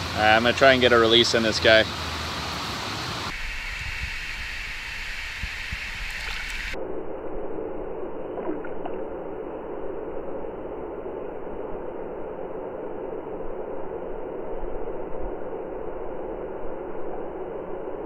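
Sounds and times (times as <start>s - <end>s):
river water flowing: 0.0s - 6.8s.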